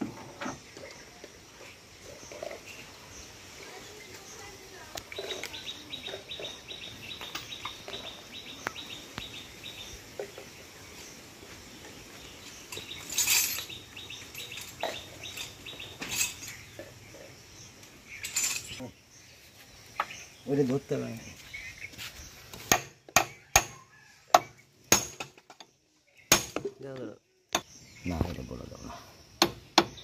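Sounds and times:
tools clinking on metal casing: 12.7 - 16.9, 18.2 - 18.8.

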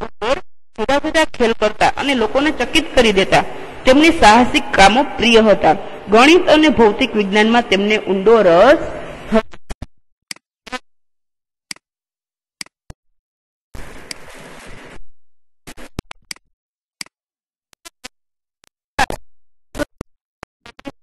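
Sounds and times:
burst of noise: 1.8 - 7.0.

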